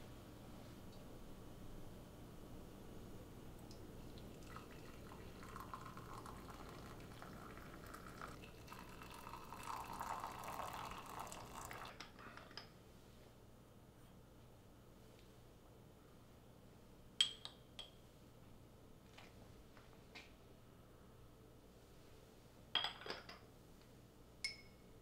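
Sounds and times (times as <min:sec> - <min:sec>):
water pouring into a mug: 0:03.7 - 0:12.0.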